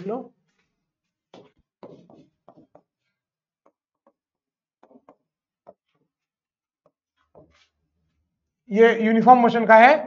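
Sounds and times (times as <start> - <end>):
stylus scraping on display: 0.5 - 8.3
stylus tapping and clicking: 1.4 - 7.8.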